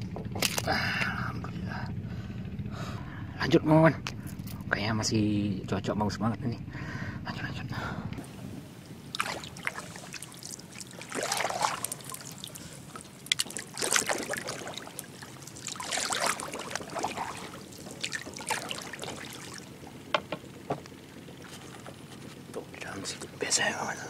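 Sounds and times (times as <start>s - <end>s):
paddle splashing in water: 9.0s - 20.6s
water trickling drips: 9.1s - 20.0s.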